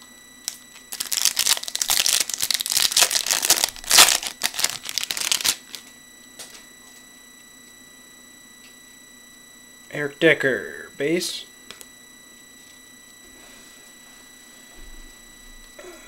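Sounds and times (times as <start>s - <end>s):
computer fan whine: 0.0s - 16.0s
wrapper crinkling and tearing: 0.5s - 5.8s.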